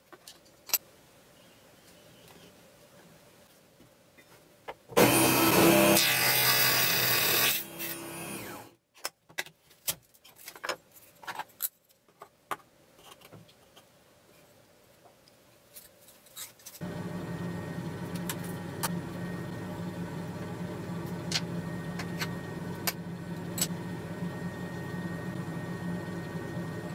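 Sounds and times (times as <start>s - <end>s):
sawing: 5.0s - 8.7s
steady low hum: 16.8s - 26.9s.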